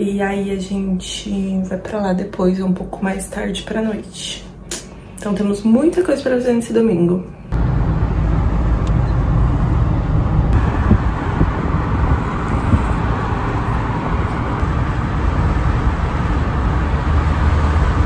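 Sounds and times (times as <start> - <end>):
road traffic rumble: 7.5 - 18.0.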